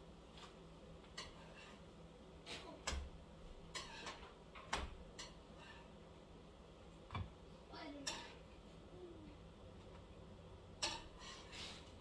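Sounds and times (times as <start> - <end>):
faint steady hum: 0.0 - 12.0.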